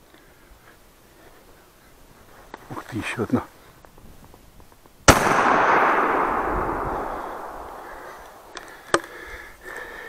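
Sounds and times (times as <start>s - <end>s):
shotgun blast echo: 5.1s - 8.6s.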